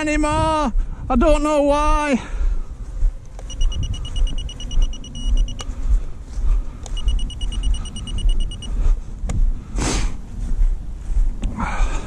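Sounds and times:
wind buffeting microphone: 0.0s - 12.0s
rapid high electronic beeps: 3.5s - 5.6s, 7.0s - 8.7s.

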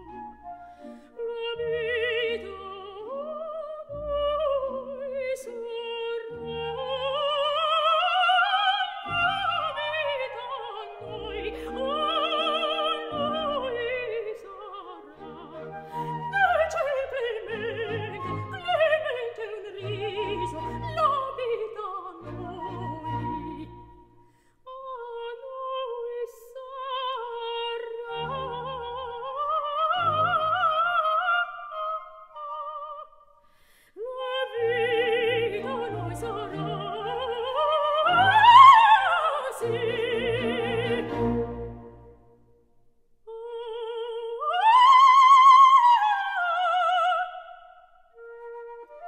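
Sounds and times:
light orchestral accompaniment: 0.0s - 24.3s, 34.5s - 42.5s
operatic soprano singing: 1.1s - 33.2s, 34.0s - 42.4s, 43.2s - 49.0s.

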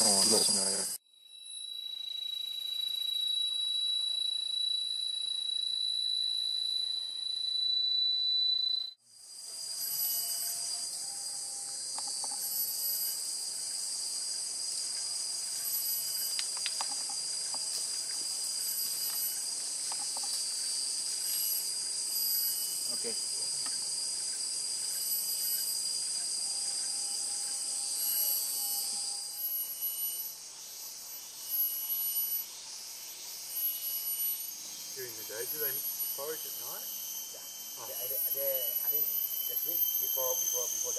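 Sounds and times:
rainforest insects droning: 0.0s - 40.9s
short insect chirps: 0.0s - 40.9s.

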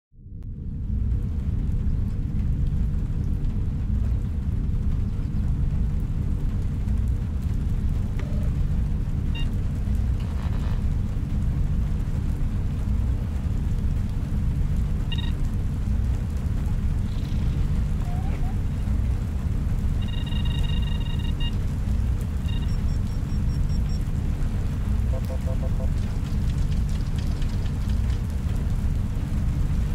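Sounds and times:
deep low drone: 0.2s - 29.9s
short electronic beeps: 15.1s - 15.4s, 20.0s - 21.6s, 22.4s - 24.0s, 25.1s - 25.9s.

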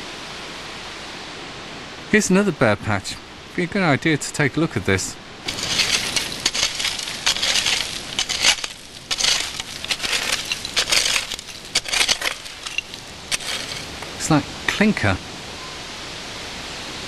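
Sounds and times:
stick raking through leaves and rubble: 5.4s - 14.4s
small stone clicks: 5.5s - 14.3s.

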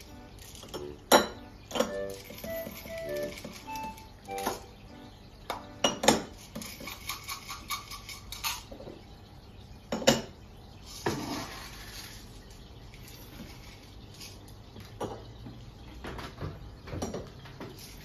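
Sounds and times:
ceramic bowls clinking: 0.0s - 4.8s.

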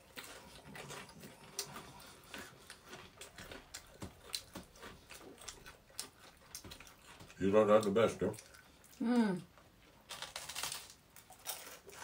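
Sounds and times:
mouth chewing and smacking: 0.0s - 9.2s.

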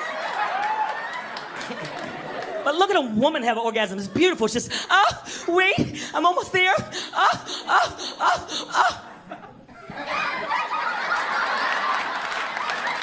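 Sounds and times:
audience laughter: 0.0s - 2.6s, 8.7s - 13.0s
man moaning rhythmically: 4.8s - 9.2s.

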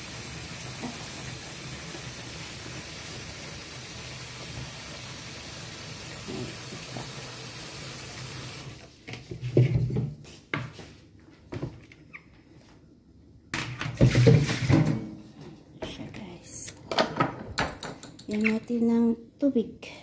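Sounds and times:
water running from a tap: 0.0s - 8.9s.

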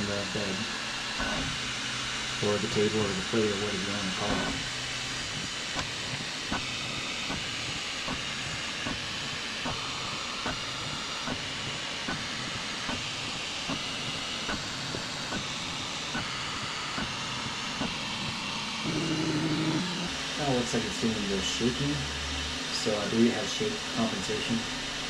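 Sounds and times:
printer hiss: 1.2s - 18.3s.

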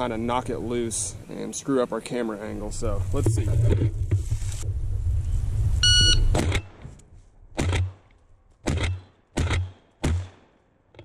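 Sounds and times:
shotgun shots: 6.3s - 6.8s, 7.6s - 8.0s, 8.6s - 10.6s.

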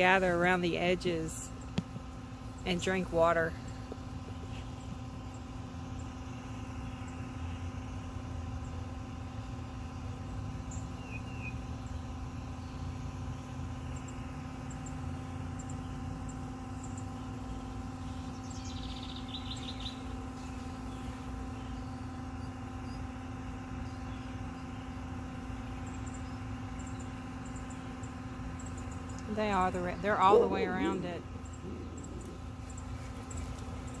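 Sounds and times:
steady low hum: 0.0s - 34.0s
birds chirping: 14.0s - 23.1s, 23.8s - 34.0s.

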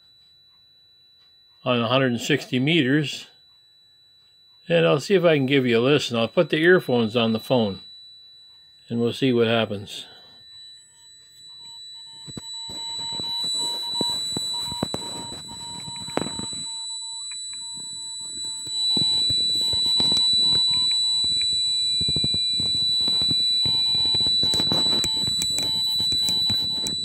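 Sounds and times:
steady high whine: 1.2s - 27.0s
morse code tone: 4.2s - 27.0s
crackling radio static: 9.0s - 27.0s
hand rubbing on phone: 11.3s - 16.8s, 17.7s - 27.0s.

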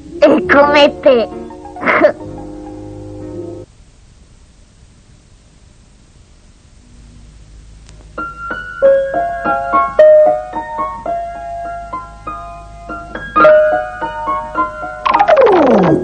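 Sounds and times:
piano tune of single notes: 0.6s - 3.7s, 8.2s - 16.0s.

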